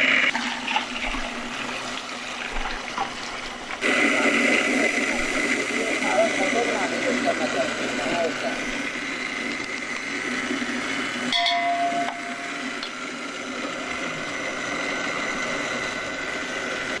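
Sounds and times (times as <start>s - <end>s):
electric motor whining hum: 3.7s - 17.0s.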